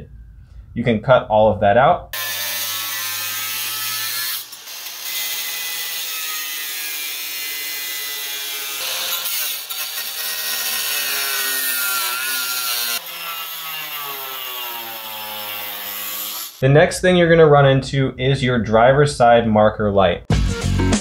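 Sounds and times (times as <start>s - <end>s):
angle grinder cutting metal: 2.2s - 16.6s.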